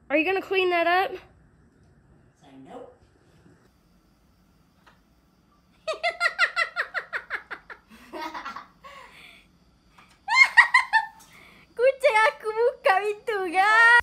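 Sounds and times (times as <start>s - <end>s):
person laughing: 5.9s - 8.7s, 10.3s - 11.2s.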